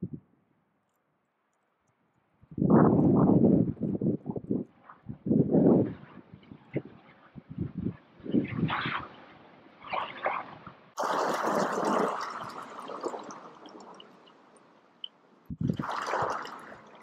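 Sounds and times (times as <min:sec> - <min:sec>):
gusty wind buffeting microphone: 0:02.4 - 0:09.2, 0:15.5 - 0:16.3.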